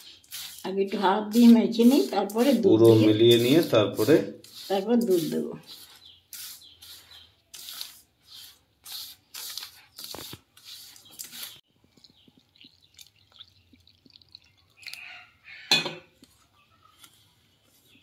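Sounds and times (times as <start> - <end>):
hand rubbing flour in bowl: 0.0 - 12.0
milk pouring: 8.7 - 15.5.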